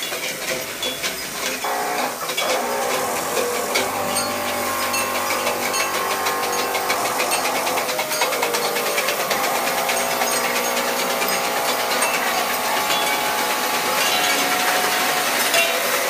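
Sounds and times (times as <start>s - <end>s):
rapid mechanical clicking and buzzing: 0.0s - 16.0s
held electronic tones: 1.6s - 15.9s.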